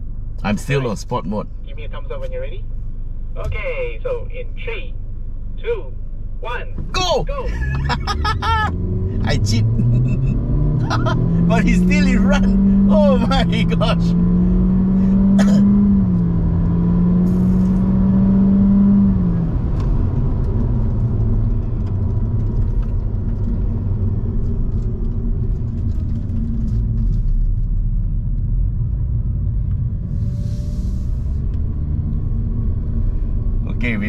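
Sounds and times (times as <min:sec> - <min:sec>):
car engine droning: 0:00.0 - 0:34.0
tyre and road rumble: 0:05.5 - 0:34.0.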